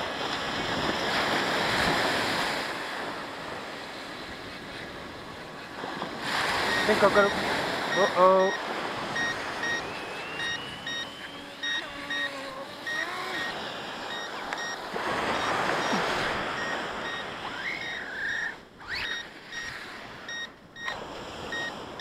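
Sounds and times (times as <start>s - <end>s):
surf washing onto shore: 0.0s - 18.6s
short high electronic beeps: 6.6s - 20.9s, 21.5s - 21.8s.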